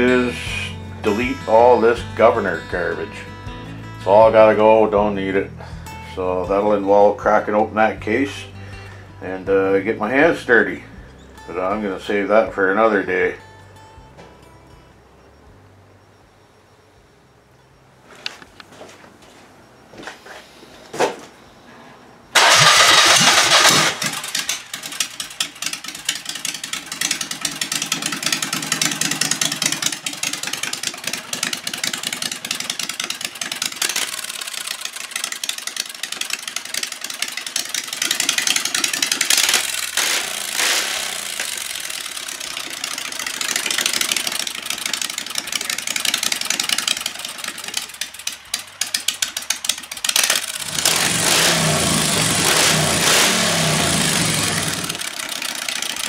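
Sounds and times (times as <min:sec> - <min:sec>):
engine revving through open exhaust: 0:22.4 - 0:35.3, 0:37.6 - 0:56.0.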